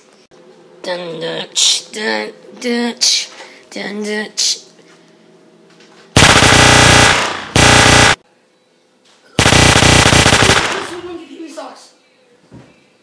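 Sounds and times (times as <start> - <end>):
machine-gun fire bursts: 6.2 - 8.2, 9.4 - 11.1.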